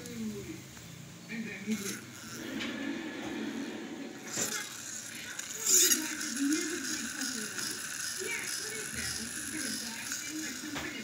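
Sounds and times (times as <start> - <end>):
toy clatter: 1.6 - 2.6, 4.2 - 11.0
toy truck gearbox whirring: 1.6 - 3.0, 4.1 - 11.0.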